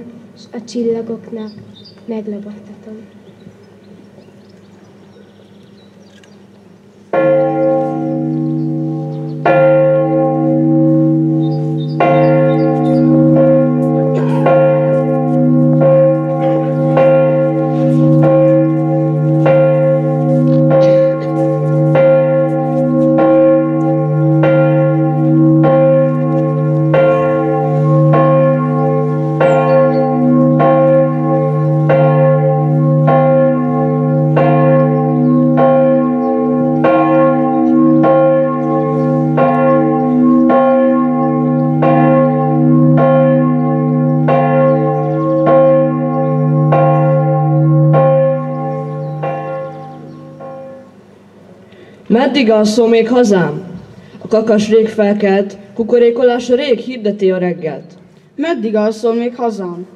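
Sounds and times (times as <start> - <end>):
church bell tolling: 7.1 - 55.0.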